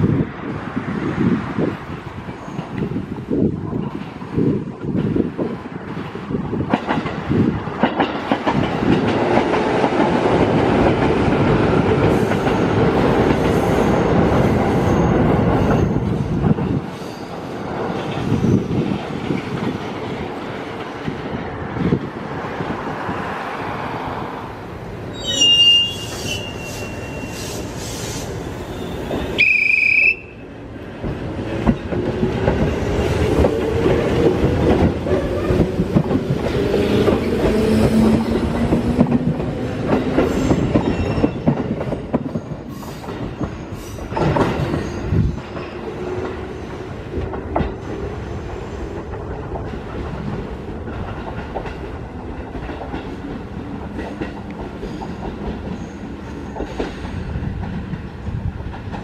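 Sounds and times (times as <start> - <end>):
train wheels clattering: 4.8 - 21.3, 31.0 - 59.0
high tone: 25.1 - 27.7.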